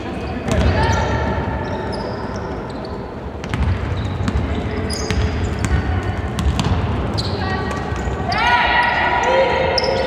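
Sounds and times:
basketball dribbling on wooden floor: 0:05.1 - 0:06.8.

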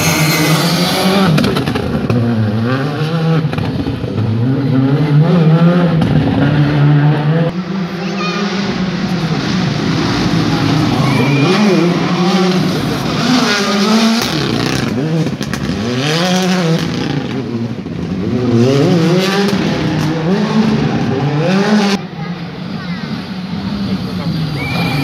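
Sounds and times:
rally car engine revving: 0:00.0 - 0:25.0.

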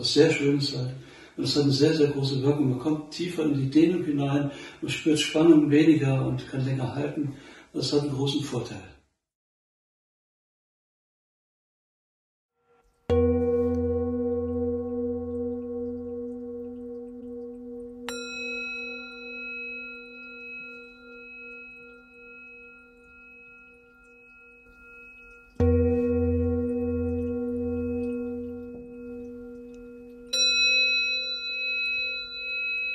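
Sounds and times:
high-pitched singing bowl ringing: 0:12.6 - 0:32.9
deep singing bowl ringing: 0:13.1 - 0:32.9.

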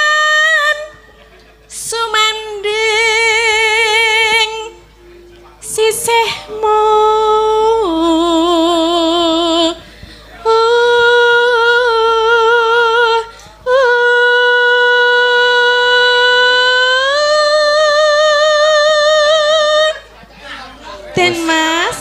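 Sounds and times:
woman singing with vibrato: 0:00.0 - 0:01.0, 0:01.7 - 0:04.8, 0:05.6 - 0:20.1, 0:21.0 - 0:22.0.

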